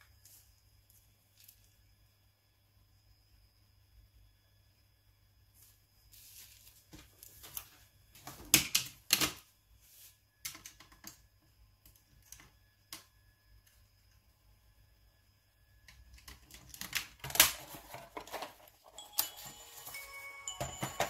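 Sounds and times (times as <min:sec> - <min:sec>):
bubble wrap rustling: 0:06.1 - 0:07.8.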